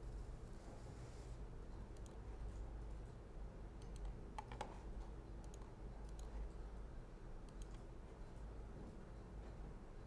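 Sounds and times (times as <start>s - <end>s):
computer mouse clicking: 2.0s - 2.2s, 3.8s - 6.4s, 7.4s - 7.9s.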